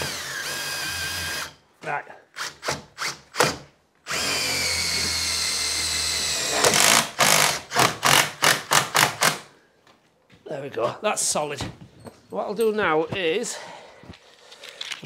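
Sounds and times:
cordless drill driving screw: 0.0 - 1.5, 2.4 - 9.4.

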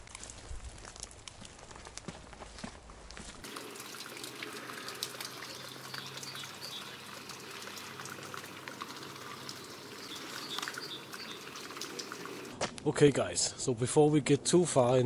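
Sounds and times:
small wet clicks: 0.0 - 2.1, 3.4 - 12.6
meltwater trickling and dripping: 3.4 - 12.6.

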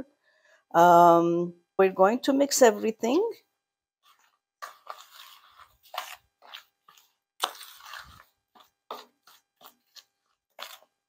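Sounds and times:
spoon scraping thick batter: 4.0 - 11.0.

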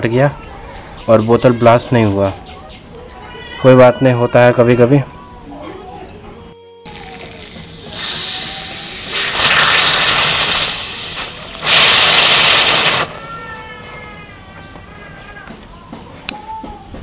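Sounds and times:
gas hissing from bottle: 6.9 - 13.2.

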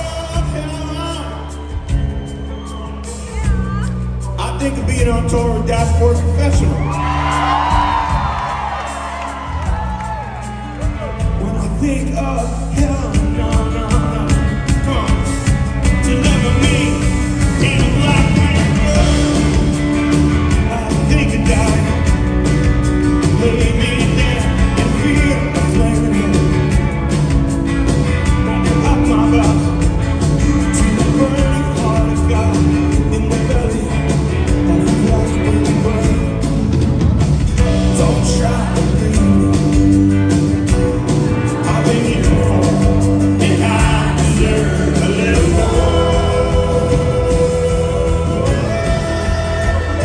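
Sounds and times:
man singing: 0.0 - 1.7, 4.2 - 8.4, 10.9 - 22.4, 23.1 - 26.8, 28.2 - 36.6, 37.6 - 40.4, 41.4 - 50.0
live rock band playing: 0.0 - 50.0.

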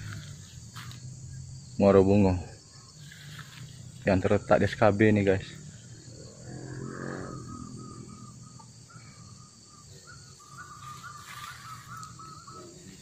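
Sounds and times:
high insect drone: 0.0 - 13.0
short chirping calls: 5.6 - 13.0.

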